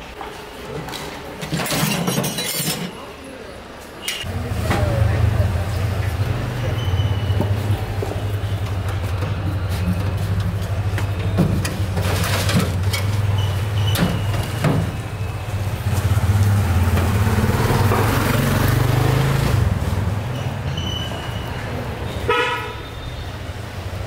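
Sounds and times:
steel vessels and lids clanking: 1.4 - 3.0
motorcycle engine passing by: 15.5 - 20.6
vehicle horn toot: 22.1 - 23.4.

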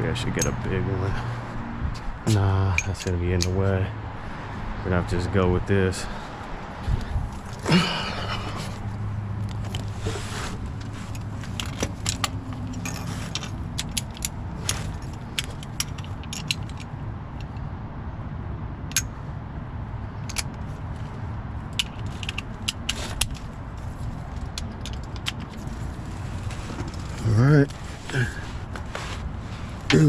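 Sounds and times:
wrench metallic clicks: 11.6 - 17.6, 18.9 - 19.1, 20.2 - 20.6.

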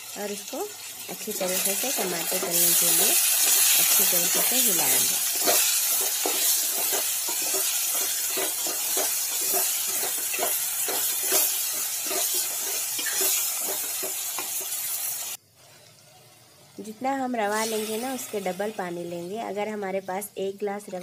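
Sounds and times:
vegetables sizzling in oil: 0.0 - 21.0
wooden spatula scraping pot: 2.2 - 14.8.

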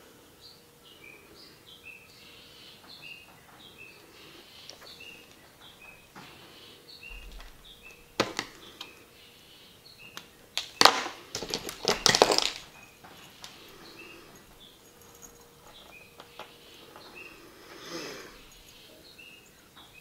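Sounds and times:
bird chirping: 0.0 - 20.0.

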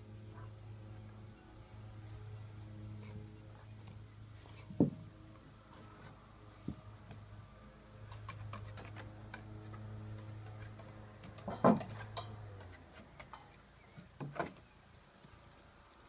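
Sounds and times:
steady low hum: 0.0 - 14.0
dog clicking on wooden boards: 8.0 - 14.6.

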